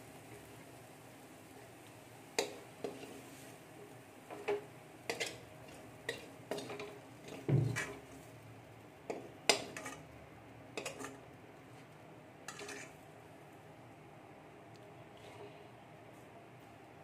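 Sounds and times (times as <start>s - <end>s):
spoon scraping metal pan: 4.3s - 8.0s, 9.1s - 10.0s, 10.8s - 11.2s, 12.5s - 13.0s.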